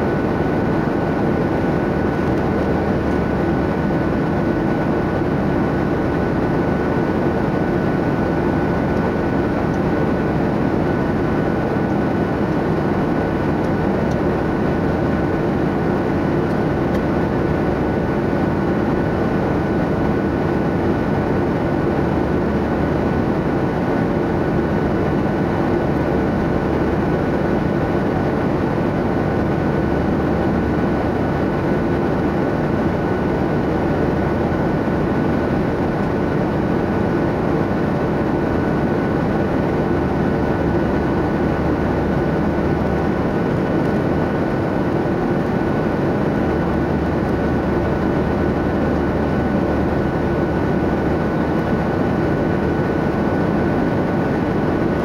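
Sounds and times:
jet engine and airflow drone: 0.0s - 55.0s.

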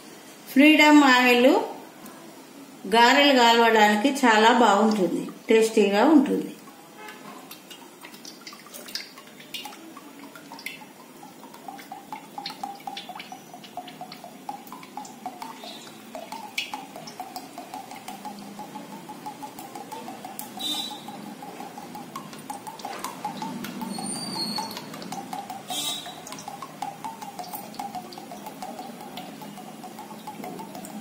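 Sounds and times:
oil pouring into a pan: 6.7s - 31.0s
quick repeating gurgle: 8.0s - 31.0s.

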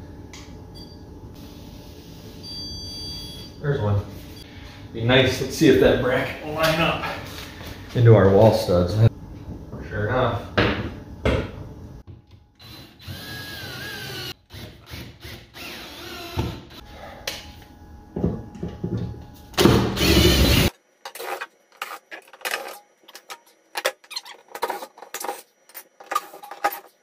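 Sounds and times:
cordless drill whining: 12.6s - 16.7s, 20.0s - 20.7s.

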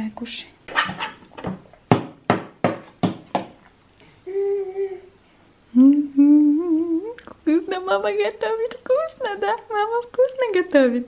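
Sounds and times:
person humming: 4.2s - 7.3s.

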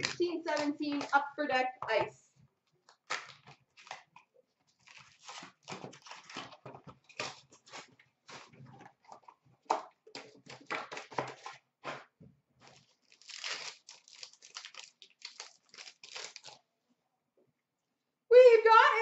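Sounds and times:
wrapper crinkling and tearing: 0.0s - 1.2s, 2.8s - 9.3s, 12.6s - 16.7s.

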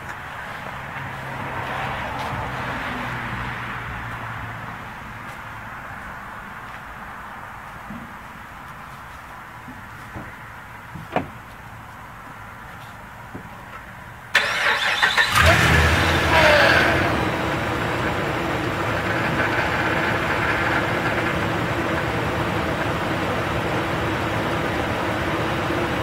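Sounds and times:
starter cranking engine: 14.4s - 17.2s
car engine revving and idling: 14.4s - 26.0s.

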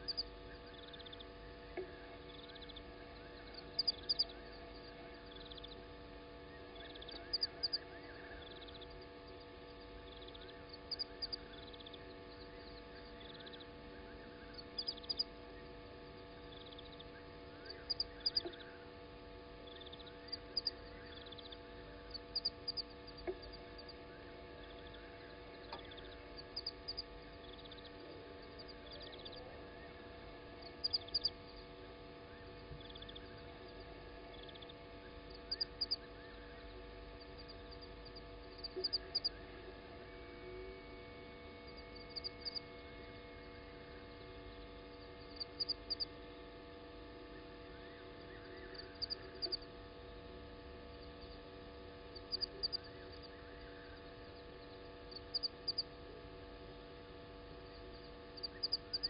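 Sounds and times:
animal chirping at night: 0.0s - 5.8s, 6.4s - 18.8s, 19.6s - 30.0s, 30.6s - 31.7s, 32.3s - 39.6s, 47.3s - 49.7s, 52.1s - 54.0s, 57.7s - 59.0s
steady electrical hum: 0.0s - 59.0s.

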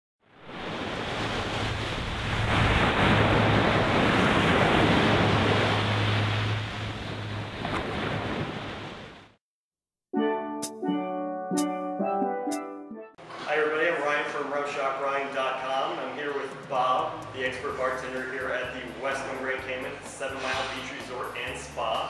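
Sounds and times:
small waves breaking on sand: 0.4s - 9.3s
music with struck pitched notes: 10.2s - 13.2s, 16.5s - 21.6s.

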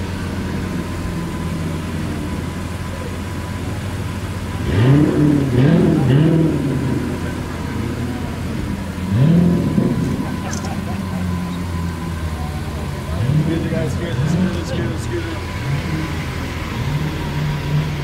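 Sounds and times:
car engine idling and revving: 0.0s - 18.0s.

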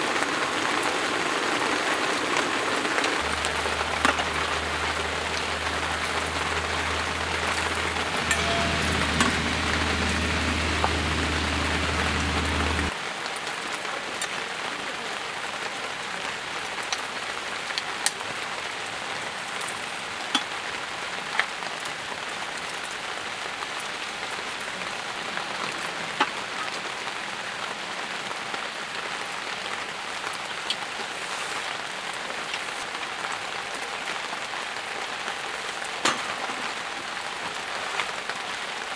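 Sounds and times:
steady rain falling: 0.0s - 38.9s
low steady hum: 3.2s - 12.9s.

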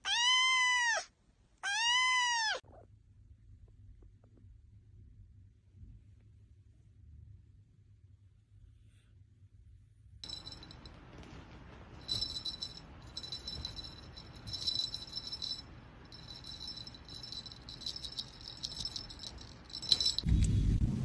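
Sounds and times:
quiet metallic jingling: 10.2s - 20.3s.

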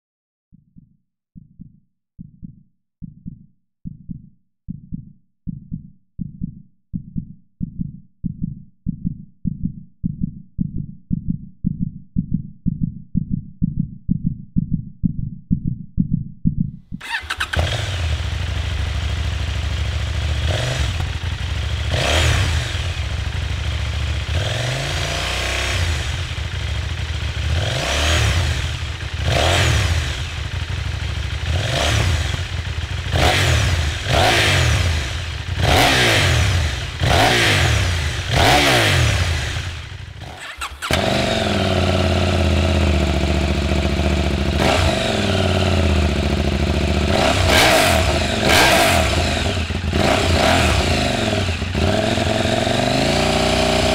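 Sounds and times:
deep thumps: 0.5s - 17.0s
motorcycle engine revving: 17.0s - 53.9s.

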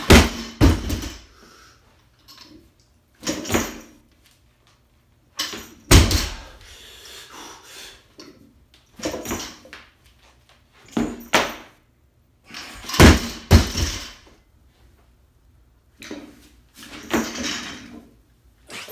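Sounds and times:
barbell thudding on floor: 0.0s - 1.2s, 5.9s - 6.5s, 12.9s - 14.2s.

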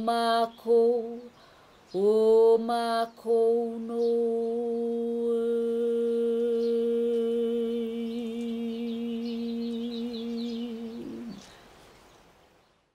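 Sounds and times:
faint bird chirps: 3.8s - 12.9s.

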